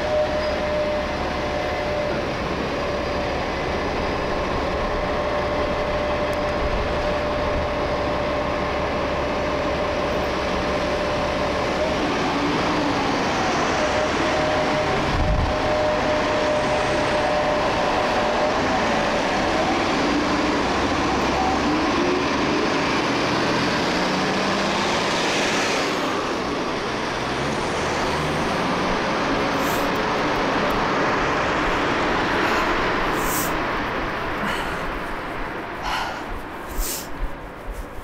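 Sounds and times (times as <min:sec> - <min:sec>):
road traffic rush: 0:00.0 - 0:38.0
vehicle passing: 0:22.4 - 0:37.1.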